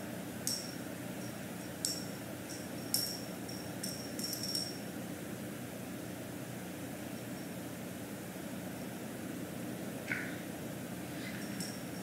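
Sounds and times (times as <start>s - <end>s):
fan humming: 0.0s - 12.0s
small bell jingling: 0.5s - 4.8s, 11.2s - 12.0s.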